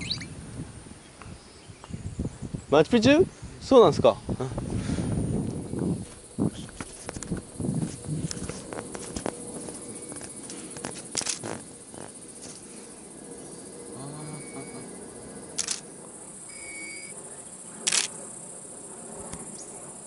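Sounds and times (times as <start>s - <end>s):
high-pitched insect buzz: 0.0s - 0.4s, 4.4s - 20.0s
camera shutter clicks: 11.2s - 11.6s, 15.6s - 15.8s, 17.8s - 18.2s
short beeps: 14.2s - 14.9s, 16.5s - 17.2s.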